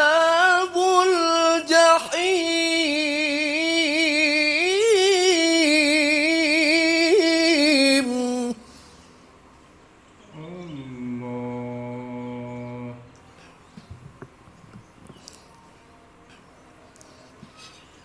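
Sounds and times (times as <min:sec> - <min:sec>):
man reciting melodically: 0:00.0 - 0:09.0, 0:10.3 - 0:13.2.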